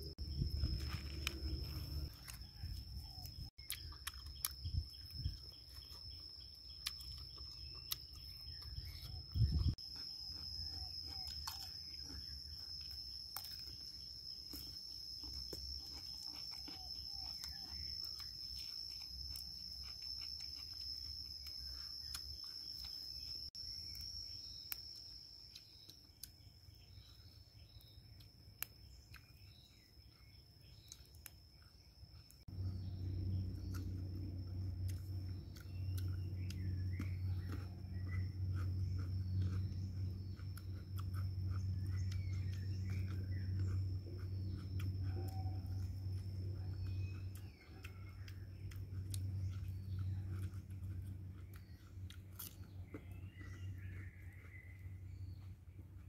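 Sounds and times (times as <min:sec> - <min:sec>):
low rumble: 0:00.0 - 0:03.2
high-pitched insect drone: 0:00.0 - 0:28.0.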